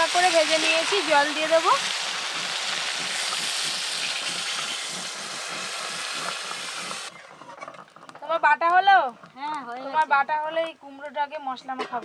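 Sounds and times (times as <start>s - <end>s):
water hissing in hot oil: 0.0s - 7.1s.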